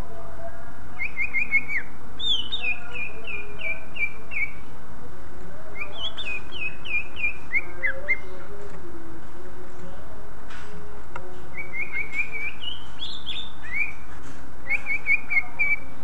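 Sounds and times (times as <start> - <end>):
bird singing whistled notes: 1.0 - 4.6, 11.5 - 14.0, 14.6 - 15.9.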